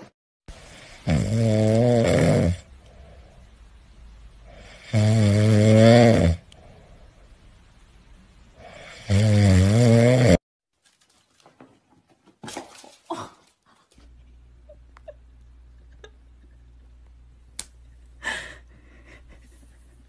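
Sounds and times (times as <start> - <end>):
cat snoring: 0.7 - 2.6.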